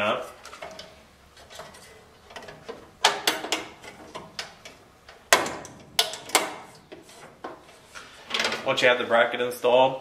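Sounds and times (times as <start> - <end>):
sheet metal clicks and knocks: 0.4 - 7.6.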